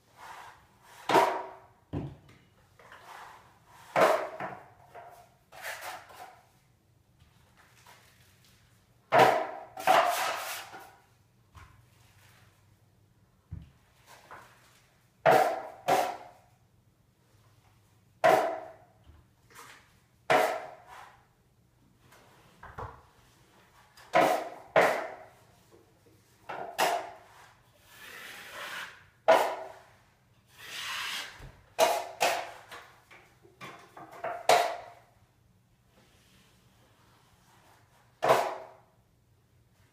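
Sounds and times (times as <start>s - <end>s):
drywall knife scraping: 0.1s - 1.6s, 2.8s - 6.6s, 9.2s - 11.0s, 15.3s - 16.4s, 19.6s - 21.3s, 24.0s - 25.4s, 26.7s - 32.8s, 37.4s - 38.8s.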